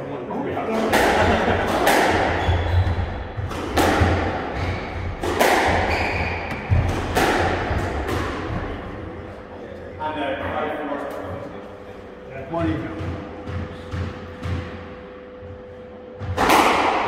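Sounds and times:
squash ball hitting rackets and walls: 0.7s - 9.1s, 12.5s - 15.1s, 16.1s - 17.0s.

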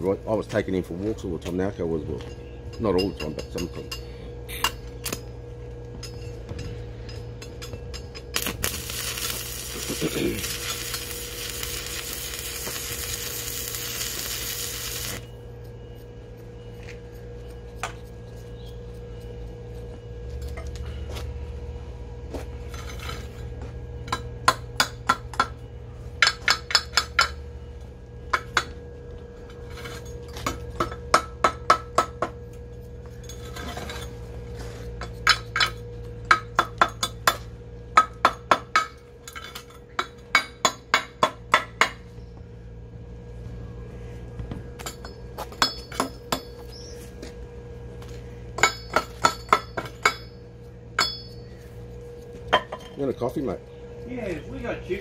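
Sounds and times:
faint steady hum: 0.0s - 55.0s
ringing metal clinks: 2.2s - 9.6s, 48.6s - 51.6s.

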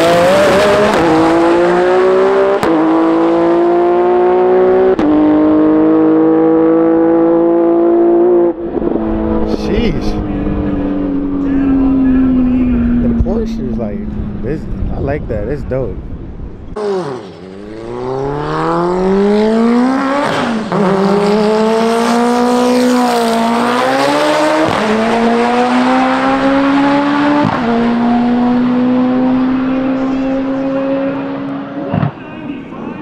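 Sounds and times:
race car engine accelerating: 0.0s - 32.8s.

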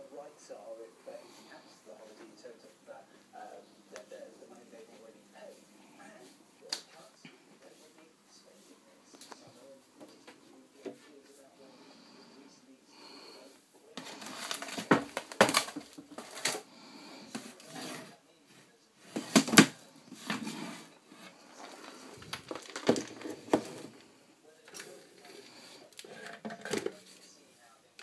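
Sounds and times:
containers clattering in cupboard: 14.0s - 16.7s, 19.1s - 20.9s, 21.6s - 24.0s, 26.0s - 27.2s.

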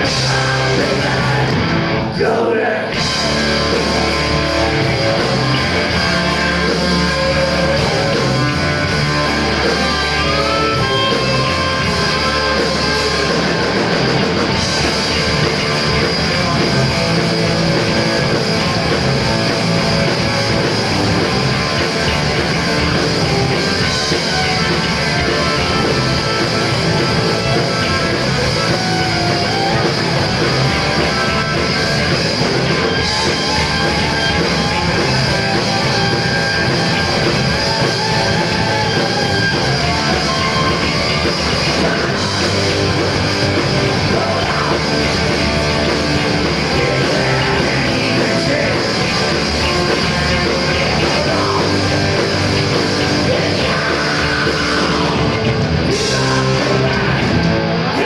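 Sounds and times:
rock band playing live: 0.0s - 58.0s.

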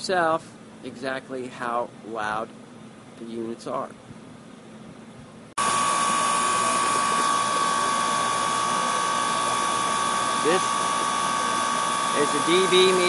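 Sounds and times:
faint background hum: 0.0s - 5.6s
heat pump compressor hum and whine: 0.0s - 13.0s.

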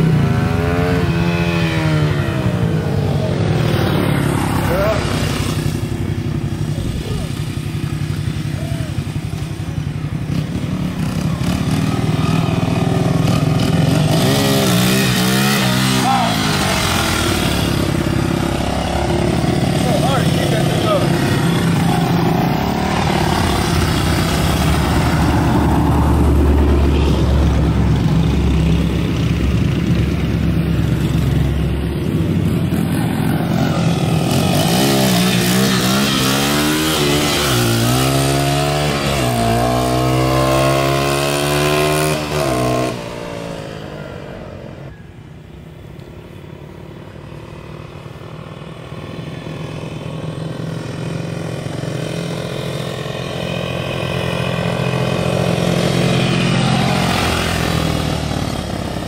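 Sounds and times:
dirt bike engine revving: 0.0s - 44.9s, 48.6s - 59.0s.

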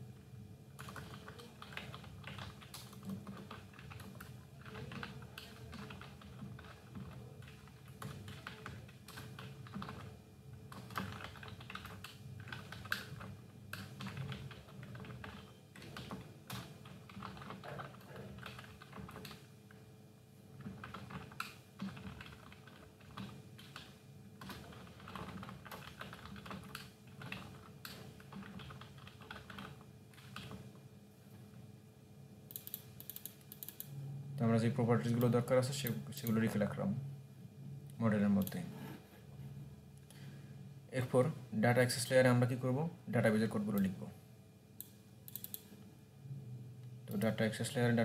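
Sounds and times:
faint steady hum: 0.0s - 48.0s
computer keyboard typing: 0.8s - 10.1s, 10.7s - 19.8s, 20.6s - 30.6s, 32.5s - 33.9s, 44.8s - 45.7s.

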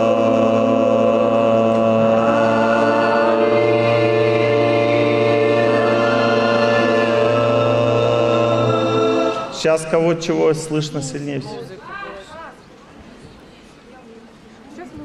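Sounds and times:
crowd chanting in unison: 0.0s - 10.4s
background music: 0.0s - 11.5s
man speaking into microphone: 9.6s - 11.8s.

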